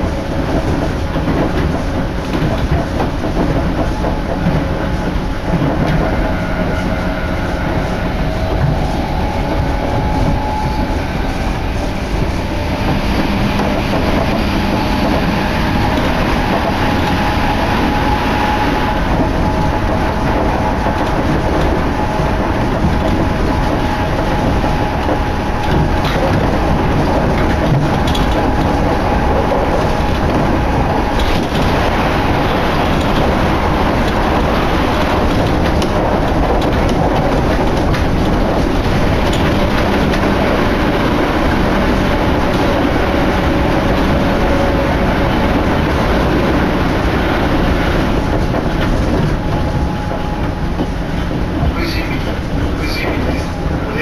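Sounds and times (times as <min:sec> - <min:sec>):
faint train whine: 0:00.0 - 0:54.0
train wheels rumbling on rails: 0:00.0 - 0:54.0.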